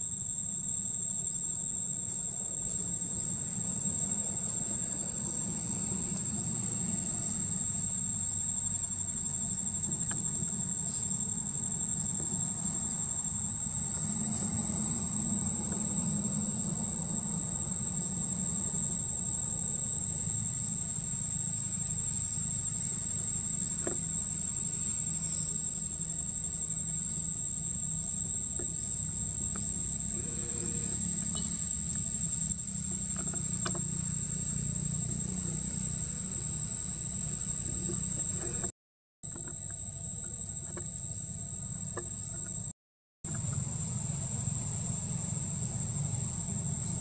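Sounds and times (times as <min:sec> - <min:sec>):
insects calling high-pitched: 0:00.0 - 0:38.7
low steady rumble: 0:43.3 - 0:47.0.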